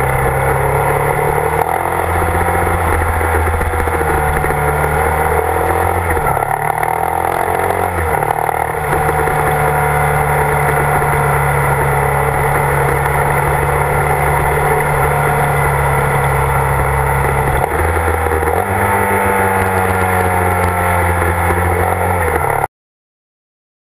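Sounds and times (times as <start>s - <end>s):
motorcycle engine running: 0.0s - 22.7s.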